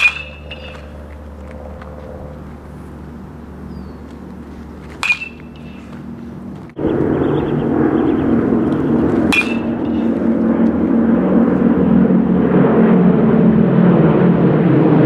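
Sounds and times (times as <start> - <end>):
metal bat hitting a ball: 0.0 - 1.2, 4.7 - 6.2, 8.7 - 10.3
loud steady rushing noise: 0.0 - 15.0.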